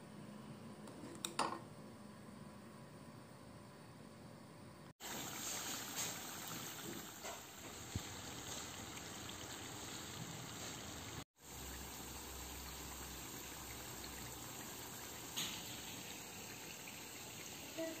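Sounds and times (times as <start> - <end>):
pastry deep-frying in oil: 5.0 - 18.0.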